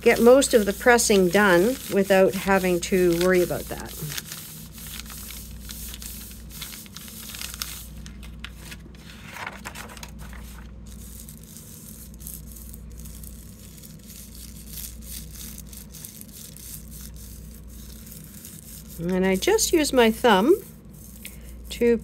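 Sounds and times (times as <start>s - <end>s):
paper and tissue rustling: 0.0s - 22.0s
steady low hum: 0.0s - 22.0s.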